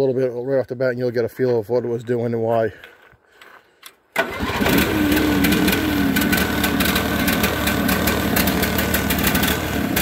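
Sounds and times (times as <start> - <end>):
engine running roughly: 4.2 - 10.0.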